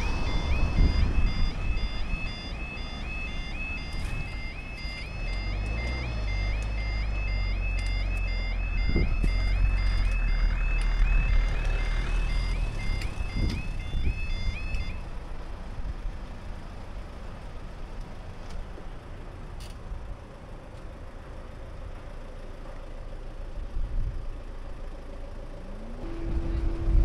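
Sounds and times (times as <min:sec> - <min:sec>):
level crossing warning alarm: 0:00.0 - 0:15.1, 0:25.6 - 0:27.0
car driving over crossing: 0:00.0 - 0:27.0
low engine rumble: 0:00.0 - 0:27.0.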